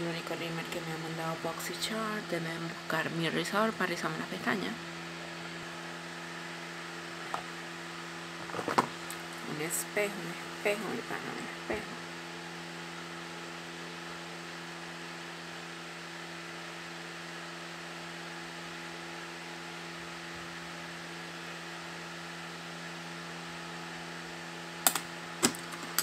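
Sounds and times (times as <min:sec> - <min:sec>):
low electrical hum: 0:00.0 - 0:26.0
sharp clicks: 0:24.8 - 0:25.6.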